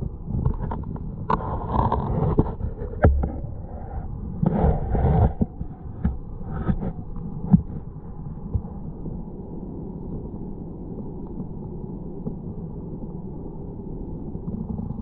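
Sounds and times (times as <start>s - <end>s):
underwater knocks and clicks: 0.0s - 8.8s
underwater stream rumble: 0.0s - 15.0s.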